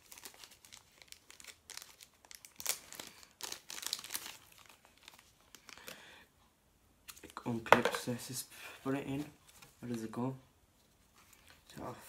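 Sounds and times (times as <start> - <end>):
plastic wrapping crinkling: 0.0 - 5.9.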